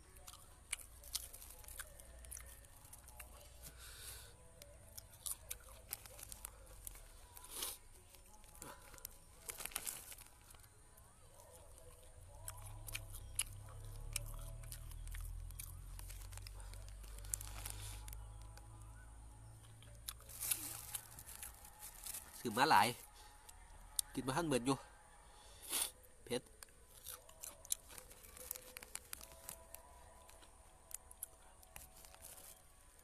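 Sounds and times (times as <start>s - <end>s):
crunchy food chewing: 0.0s - 24.8s, 25.6s - 33.0s
plastic bag crinkling: 5.7s - 10.7s, 20.2s - 22.7s, 27.7s - 31.0s, 31.6s - 32.6s.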